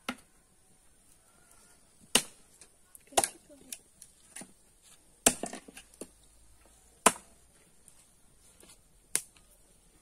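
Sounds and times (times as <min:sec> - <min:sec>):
wood fire crackling: 0:00.6 - 0:10.0
fire popping: 0:07.0 - 0:09.6.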